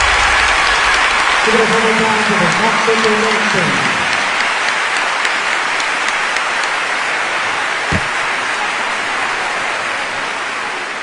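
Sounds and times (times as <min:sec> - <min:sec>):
crowd applauding: 0:00.0 - 0:11.0
low thump: 0:07.9 - 0:08.2.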